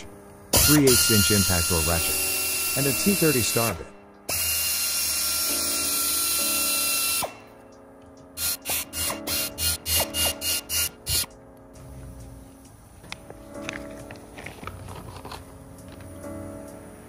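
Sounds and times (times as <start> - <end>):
power driver running: 0.0 - 7.5
power driver trigger bursts: 0.5 - 7.5, 8.4 - 11.4.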